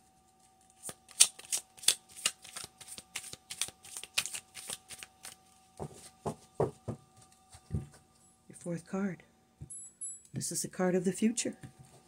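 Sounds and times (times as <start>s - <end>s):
cards being shuffled: 0.3s - 6.2s.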